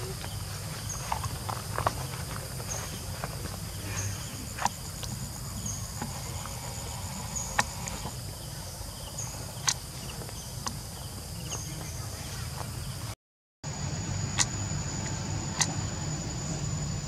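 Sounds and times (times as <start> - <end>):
insects chirping in bursts: 0.0 - 17.0
steady low hum: 0.0 - 17.0.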